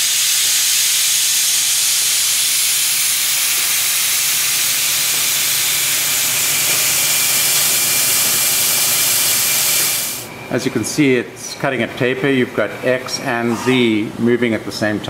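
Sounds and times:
coolant mist spraying hiss: 0:00.0 - 0:10.3
lathe humming: 0:00.0 - 0:10.4.

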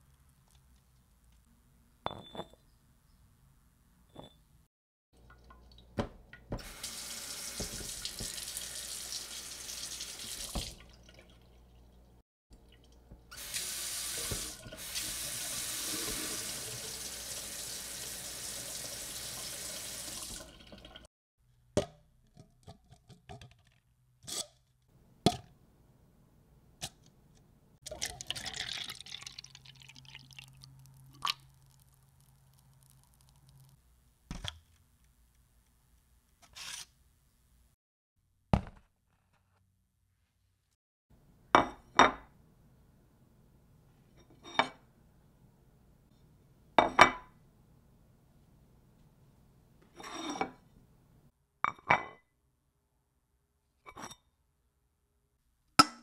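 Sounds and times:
kitchenware knocks and clinks: 0:02.1 - 0:02.6
tap running into sink: 0:07.5 - 0:08.5, 0:10.3 - 0:10.8, 0:14.2 - 0:14.8.

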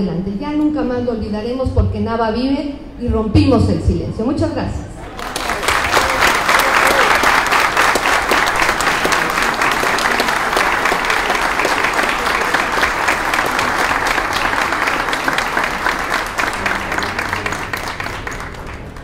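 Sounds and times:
audience applauding: 0:05.0 - 0:19.0.

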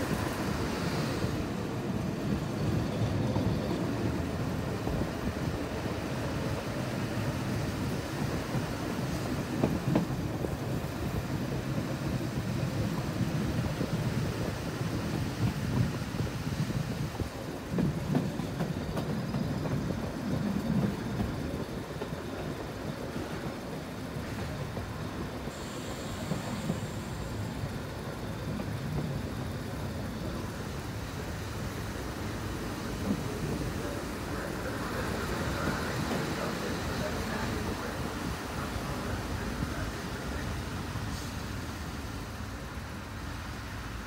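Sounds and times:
railcar engine and wheels rumbling: 0:00.0 - 0:44.0
wheels knocking on rails: 0:02.4 - 0:39.8.

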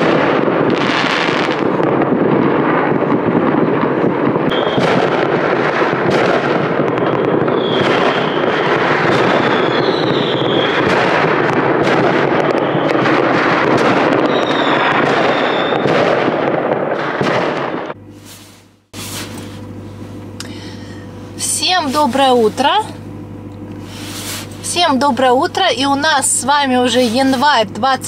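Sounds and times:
fireworks crackling and bangs: 0:00.0 - 0:20.4
rocket whistles: 0:04.5 - 0:05.3, 0:06.1 - 0:16.2.

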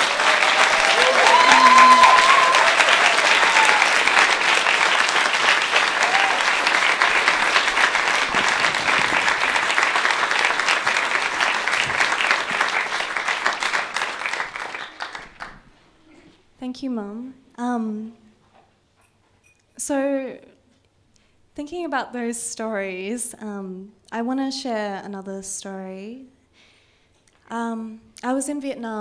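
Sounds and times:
people calling out: 0:00.0 - 0:04.1
audience applauding: 0:00.0 - 0:15.7.

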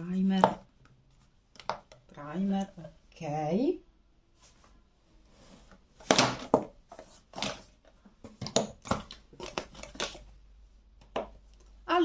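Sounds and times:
bottles clicking and knocking: 0:08.3 - 0:10.3.

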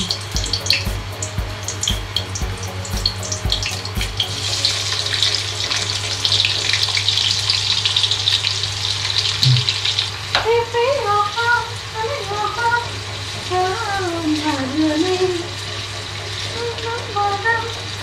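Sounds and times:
high-pitched warbling notes: 0:00.0 - 0:07.6
onions sizzling in hot oil: 0:00.0 - 0:10.4, 0:11.8 - 0:18.0.

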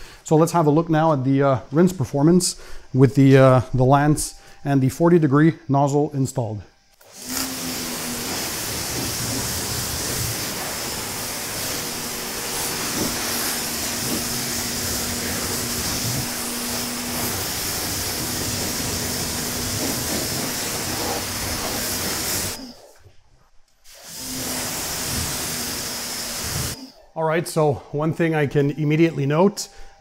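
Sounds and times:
pressure washer spray hiss: 0:07.0 - 0:22.6, 0:23.9 - 0:26.8
pressure washer hum: 0:07.0 - 0:22.8, 0:23.9 - 0:26.8.

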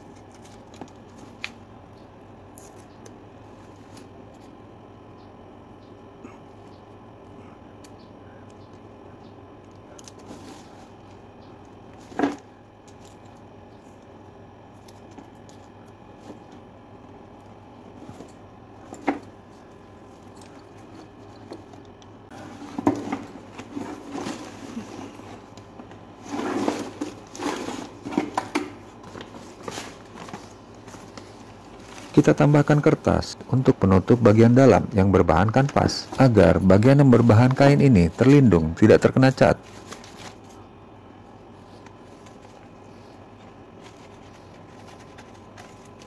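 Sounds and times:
faint steady hum: 0:00.0 - 0:46.0
paper rustling and crinkling: 0:22.4 - 0:25.6, 0:26.2 - 0:32.8, 0:39.5 - 0:40.6, 0:41.6 - 0:46.0.

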